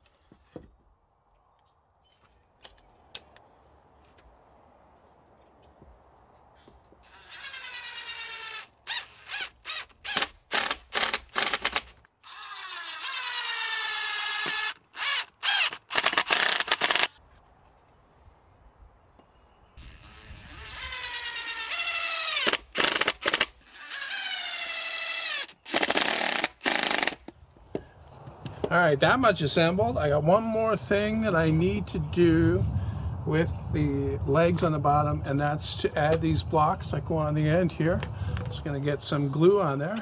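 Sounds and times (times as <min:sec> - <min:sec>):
impact driver driving screws: 0:07.0 - 0:17.2, 0:19.9 - 0:27.3.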